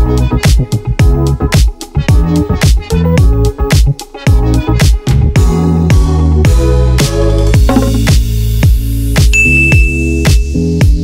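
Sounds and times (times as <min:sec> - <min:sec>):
electronic music with heavy beat: 0:07.6 - 0:08.4
sliding deep bass notes: 0:07.6 - 0:08.4.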